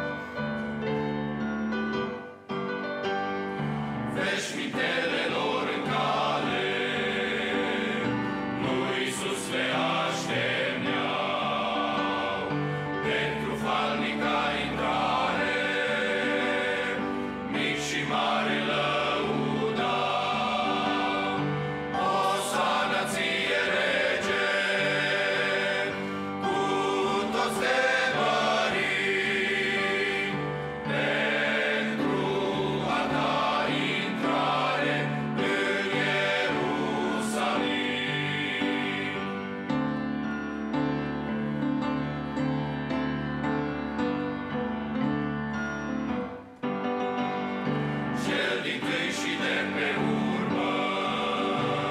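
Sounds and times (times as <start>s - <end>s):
men's choir singing a hymn: 3.6s - 40.0s, 47.3s - 51.9s.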